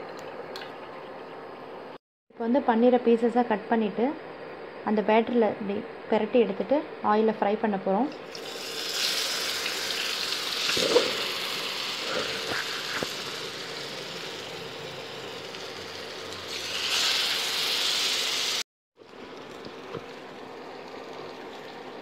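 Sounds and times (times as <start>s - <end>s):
cheese cubes sizzling in hot oil: 8.3s - 18.6s.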